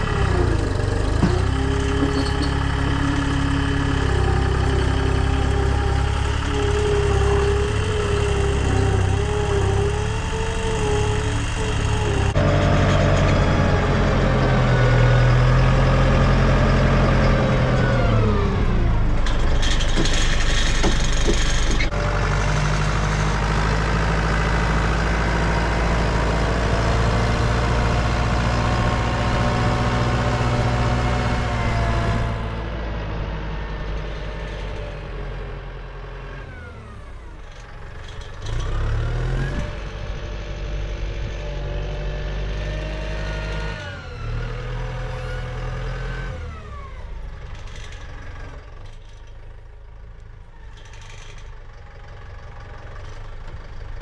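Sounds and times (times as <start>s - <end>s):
tractor diesel engine running: 0.0s - 54.0s
clattering knocks: 19.2s - 21.9s.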